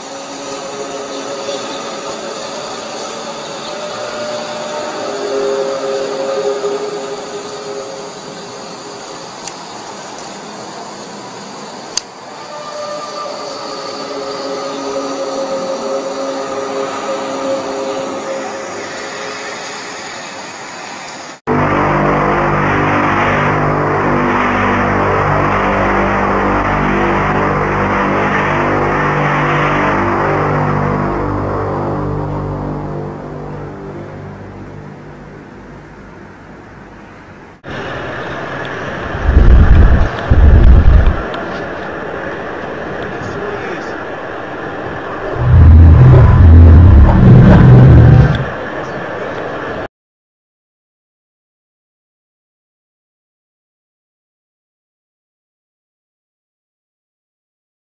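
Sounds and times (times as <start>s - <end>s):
hiss: 0.0s - 21.4s
rushing wash: 0.0s - 35.4s, 36.7s - 49.9s
droning held tones in sky: 0.0s - 49.9s.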